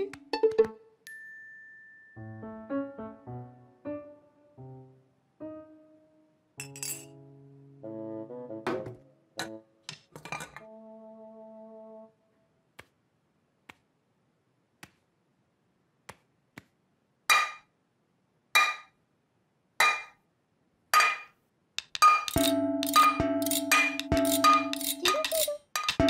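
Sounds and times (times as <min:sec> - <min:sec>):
music: 0:00.0 - 0:12.4, 0:22.2 - 0:26.0.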